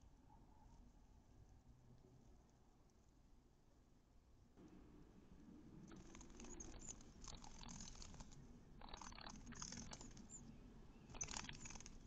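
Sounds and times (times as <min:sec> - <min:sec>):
nestling birds rustling and flapping: 0:05.9 - 0:10.4, 0:11.1 - 0:12.0
faint high peeps: 0:05.9 - 0:12.0.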